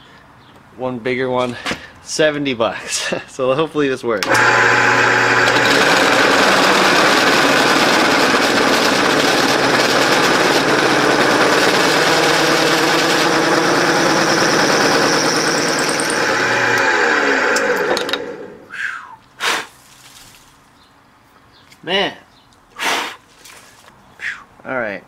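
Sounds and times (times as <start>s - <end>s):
drill bit cutting metal: 4.2s - 18.5s
drill press motor hum: 4.2s - 18.6s.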